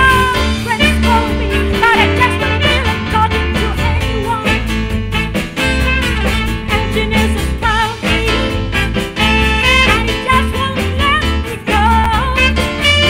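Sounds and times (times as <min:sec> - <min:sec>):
person singing: 0:00.0 - 0:04.7
live swing band playing: 0:00.0 - 0:13.0.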